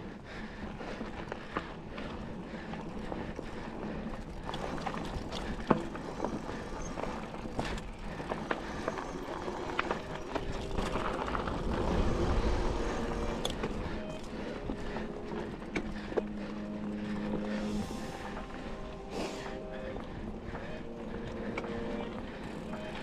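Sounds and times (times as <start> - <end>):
bike tyres rolling on dirt: 0.0 - 23.0
bike rattling over bumps: 0.1 - 18.9
low rumble: 9.6 - 23.0.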